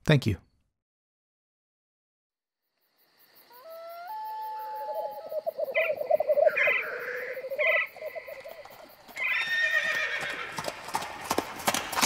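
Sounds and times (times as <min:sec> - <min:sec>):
animal call with quavering pitch: 0:03.5 - 0:10.0
higher animal call: 0:03.5 - 0:10.4.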